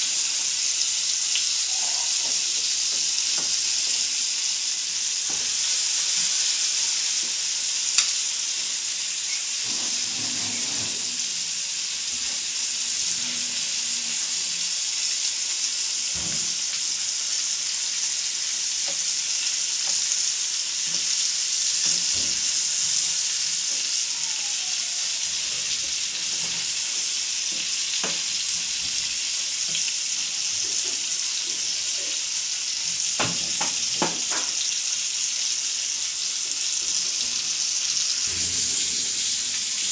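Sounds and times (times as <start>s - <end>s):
chicken frying in hot oil: 0.0s - 39.9s
spatula knocking and scraping pan: 33.2s - 34.6s.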